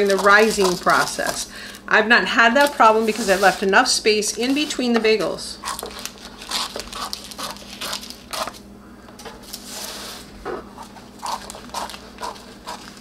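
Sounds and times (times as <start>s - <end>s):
scissors snipping paper: 0.0s - 1.4s, 5.6s - 8.6s
paper crinkling: 0.0s - 1.8s, 2.6s - 3.7s, 5.6s - 8.6s, 11.2s - 13.0s.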